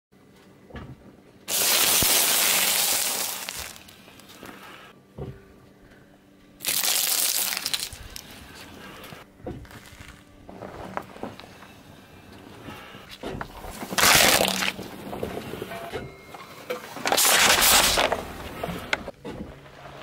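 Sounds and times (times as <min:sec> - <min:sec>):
hard candies crunching and cracking: 0:01.5 - 0:04.5, 0:06.6 - 0:10.2, 0:13.8 - 0:14.8, 0:17.0 - 0:18.2
tyre crushing wafer box: 0:01.5 - 0:04.6, 0:06.6 - 0:11.8, 0:12.7 - 0:15.9, 0:16.7 - 0:19.1.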